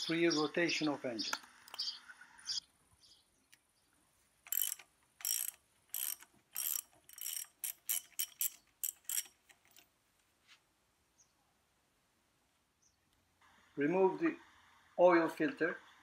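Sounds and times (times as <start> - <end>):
socket ratchet wrench clicking: 4.4 - 9.8.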